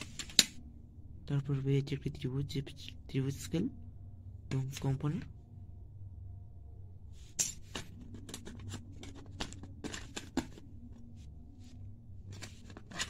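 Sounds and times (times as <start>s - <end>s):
plastic rulers clicking in a metal tin: 7.4s - 10.6s, 12.3s - 13.0s.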